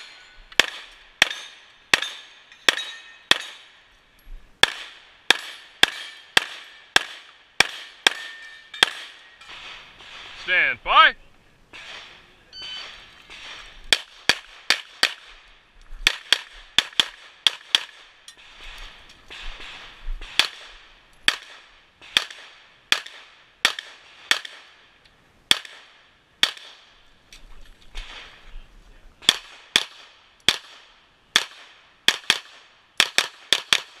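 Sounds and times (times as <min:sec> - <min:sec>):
pistol shots: 0:00.6 - 0:03.6, 0:04.6 - 0:10.7, 0:11.7 - 0:15.4, 0:16.0 - 0:18.6, 0:19.3 - 0:24.7, 0:25.5 - 0:26.8, 0:29.2 - 0:34.0.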